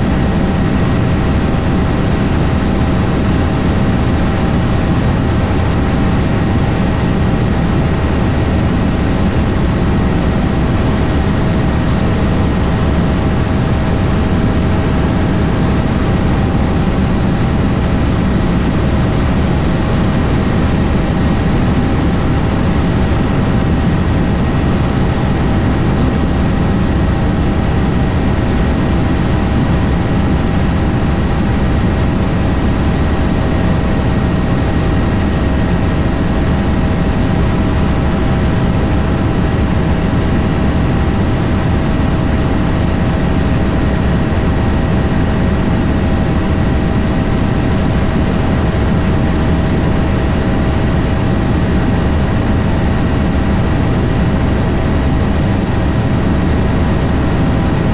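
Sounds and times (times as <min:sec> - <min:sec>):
helicopter rotor and engine drone: 0:00.0 - 0:57.9
high whine: 0:00.0 - 0:57.9.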